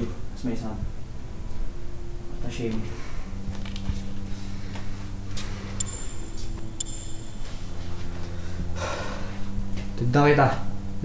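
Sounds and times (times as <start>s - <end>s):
steady low hum: 0.0s - 11.0s
thin high tone: 1.1s - 9.6s.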